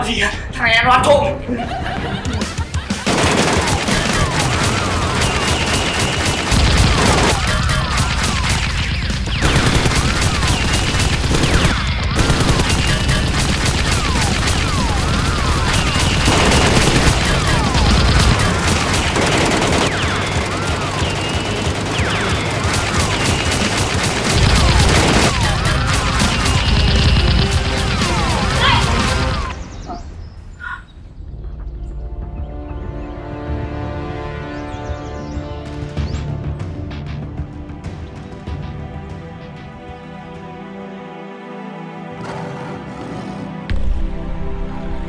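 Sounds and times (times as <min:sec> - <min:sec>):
automatic gunfire sound effects: 0:03.0 - 0:29.6
whistling effects: 0:03.7 - 0:10.9, 0:13.8 - 0:18.4, 0:19.0 - 0:30.8.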